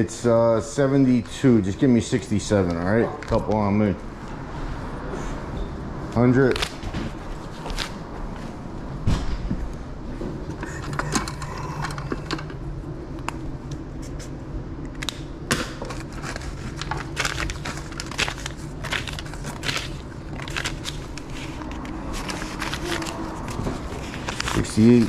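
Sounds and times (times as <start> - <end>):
banknotes rustling: 15.8 - 25.0.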